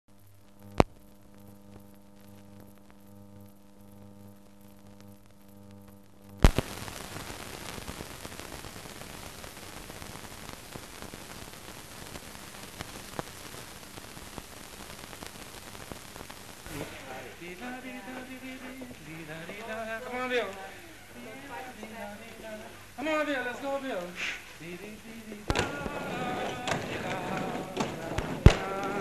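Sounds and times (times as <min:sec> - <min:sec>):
crackling hiss: 0:00.1 - 0:29.0
steady mains hum: 0:00.1 - 0:29.0
loud pop: 0:06.4 - 0:07.0, 0:16.6 - 0:17.4, 0:25.5 - 0:29.0.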